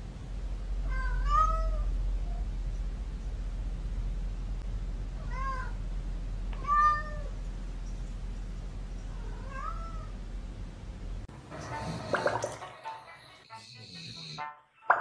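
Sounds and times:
cat meowing: 0.8s - 2.4s, 5.2s - 5.8s, 6.6s - 7.3s, 9.1s - 10.1s.

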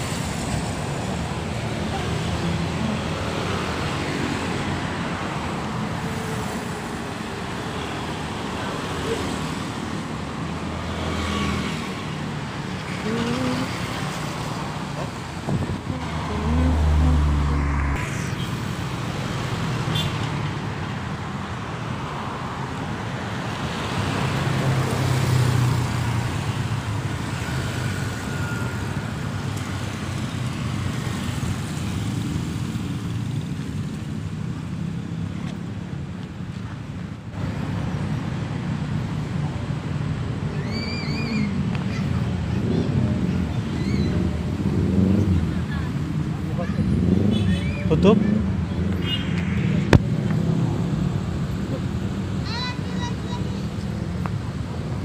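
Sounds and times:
cars passing: 0.0s - 55.0s
vehicle engine hum: 10.4s - 19.8s.

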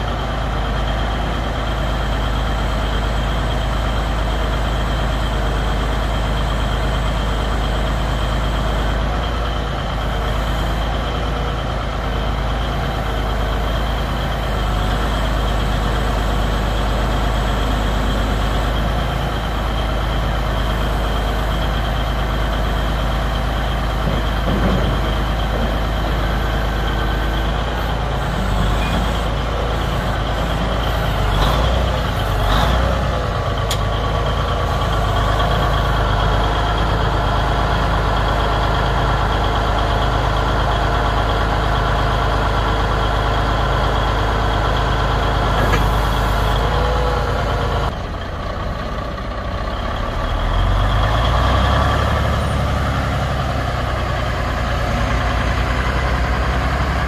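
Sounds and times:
diesel truck engine running: 0.0s - 57.0s.

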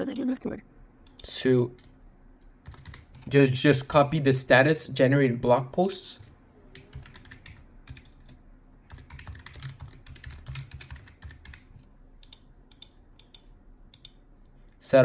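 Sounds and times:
typing on computer keyboard: 2.6s - 3.3s, 6.8s - 14.2s.

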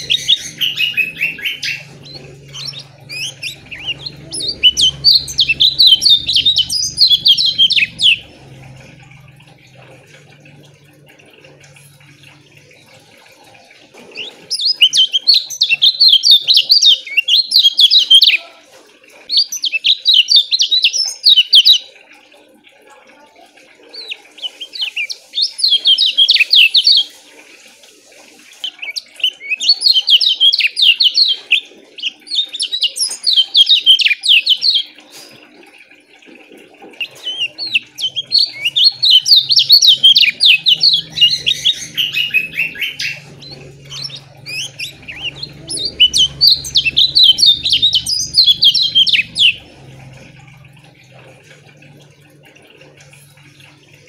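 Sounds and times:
bird fast high chirps: 37.0s - 49.6s.

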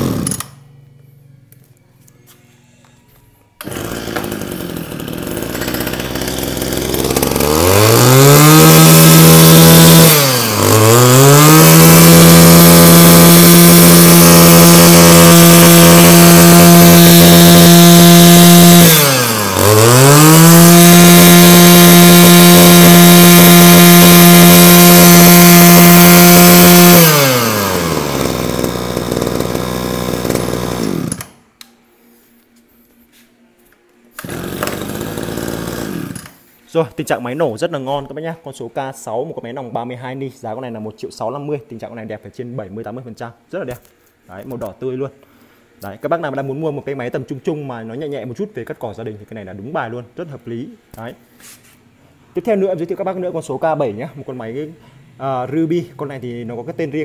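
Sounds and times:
brush cutter engine revving: 0.0s - 0.6s, 3.6s - 31.4s, 34.2s - 36.4s.

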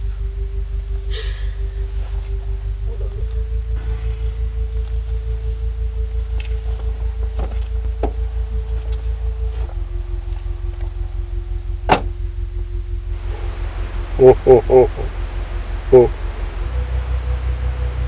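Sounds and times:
pulsing bass: 0.0s - 18.0s
held synthesizer tone: 13.1s - 18.0s.

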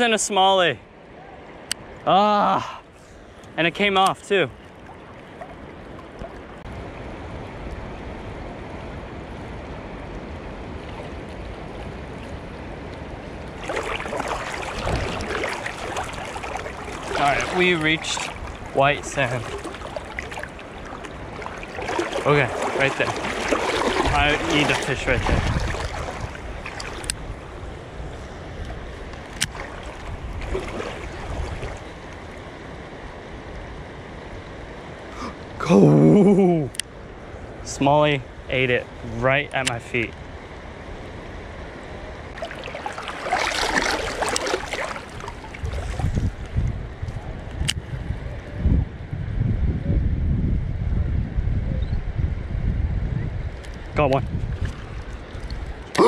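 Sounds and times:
shallow river water rushing: 0.0s - 39.2s, 39.9s - 47.4s, 53.5s - 56.0s
person wading through water: 4.5s - 6.7s, 10.8s - 32.5s, 42.3s - 46.6s, 54.4s - 56.0s
wind buffeting microphone: 5.8s - 32.2s, 42.2s - 55.9s.

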